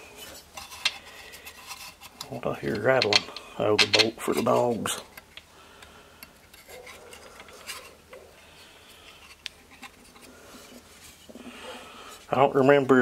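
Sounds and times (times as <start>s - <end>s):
metal parts clicking and clinking: 0.6s - 5.4s.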